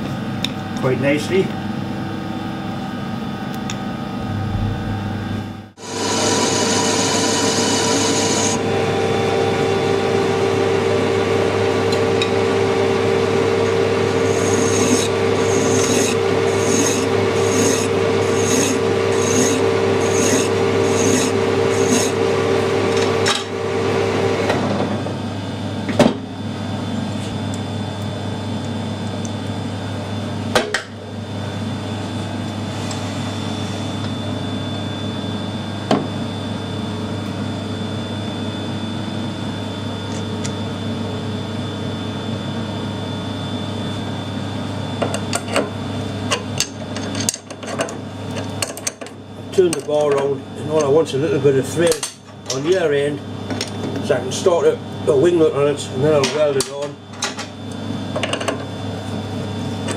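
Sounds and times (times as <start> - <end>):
metal lathe running: 4.3 - 24.5
file strokes on steel: 14.2 - 22.2.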